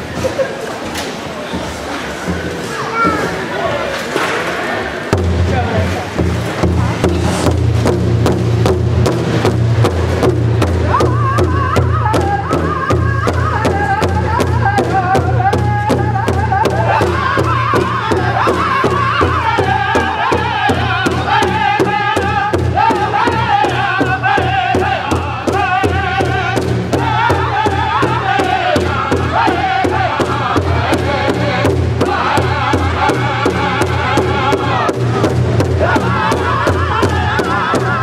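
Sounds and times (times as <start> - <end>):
bass drum steady beat: 5.1 - 38.0
group singing in high voices: 11.0 - 35.0, 35.7 - 38.0.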